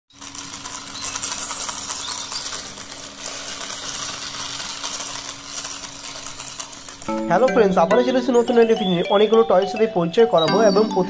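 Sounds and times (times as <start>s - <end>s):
toy scooter wheels rattling: 0.1s - 7.1s.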